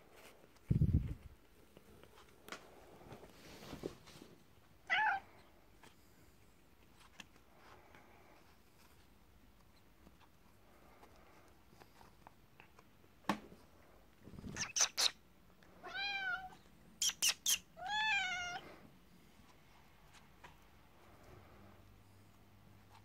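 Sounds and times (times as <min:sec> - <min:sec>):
cat meowing: 0:04.8 - 0:05.3, 0:15.8 - 0:16.6, 0:17.8 - 0:18.6.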